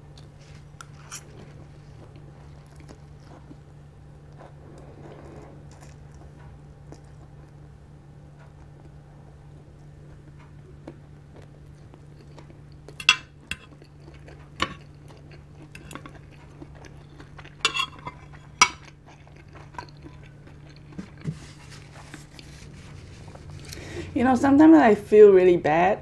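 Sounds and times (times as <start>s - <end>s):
cutlery clinking on ceramic plate: 17.6s - 18.9s.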